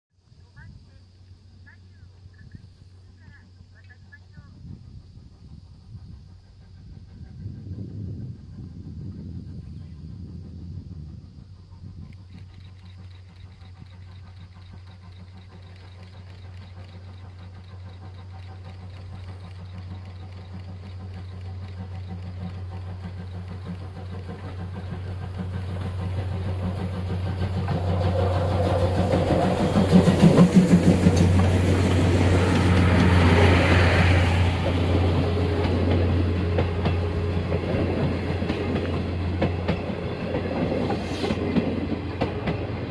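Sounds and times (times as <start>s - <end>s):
steam locomotive passing: 0.2s - 42.9s
train wheels clattering over rail joints: 12.0s - 42.9s.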